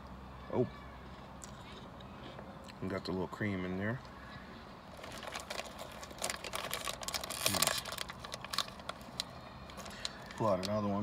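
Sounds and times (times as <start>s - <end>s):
biscuit crunching while chewed: 1.4s - 2.8s, 4.9s - 10.7s
plastic packaging crackling: 4.9s - 11.0s.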